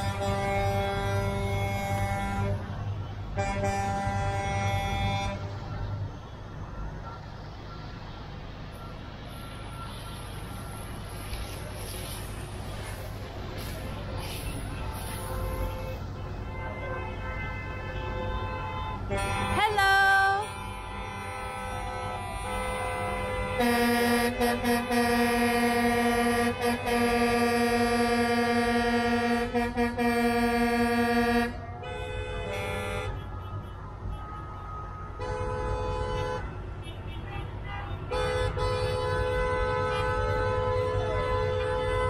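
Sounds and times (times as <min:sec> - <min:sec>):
truck air horns honking: 0:00.0 - 0:07.3, 0:13.6 - 0:42.0
low rumble of traffic: 0:00.0 - 0:42.0
higher-pitched horn blasts: 0:14.7 - 0:33.3.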